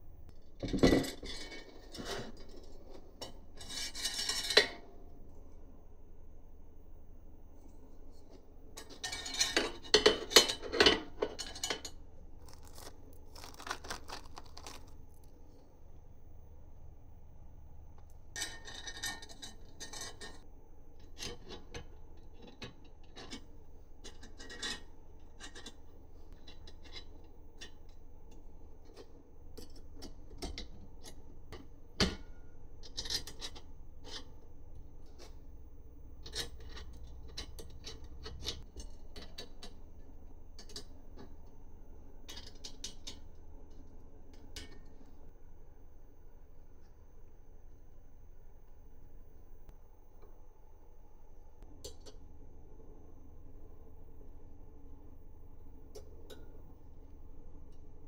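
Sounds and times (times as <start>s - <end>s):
small parts clicking and tapping: 10.0s - 15.3s
rustling and rubbing: 12.4s - 15.6s.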